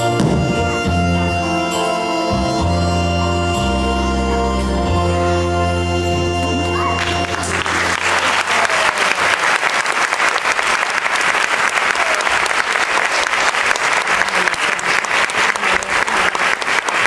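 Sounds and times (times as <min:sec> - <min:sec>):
backing music: 0:00.0 - 0:09.3
audience applauding: 0:06.4 - 0:17.0.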